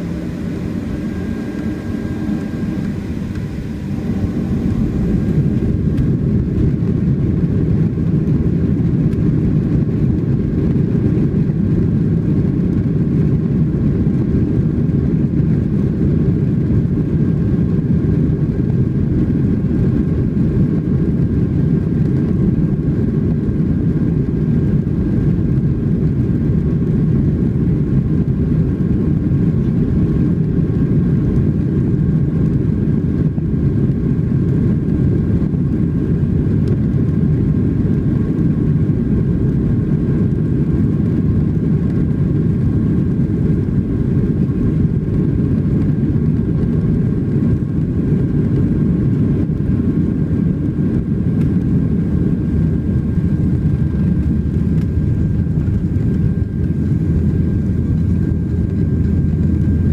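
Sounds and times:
jet engines rumbling: 0:00.0 - 0:59.9.

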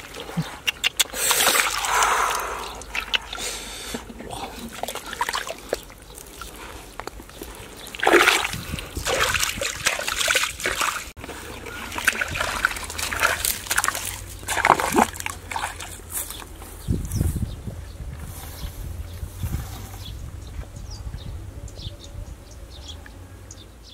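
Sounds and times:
hands splashing in wet mud: 0:00.0 - 0:16.5.

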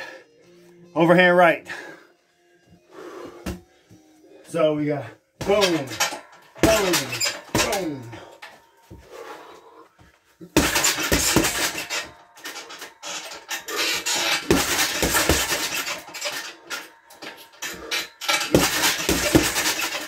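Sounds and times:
gloves punching heavy bag: 0:06.6 - 0:08.3, 0:10.4 - 0:16.2, 0:17.7 - 0:20.0.

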